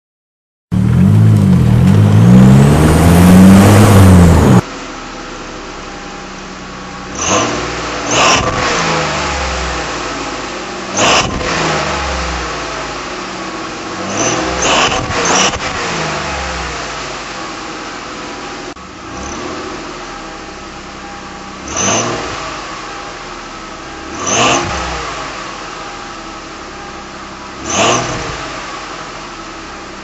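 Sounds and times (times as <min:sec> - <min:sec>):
car engine revving: 0:00.7 - 0:30.0.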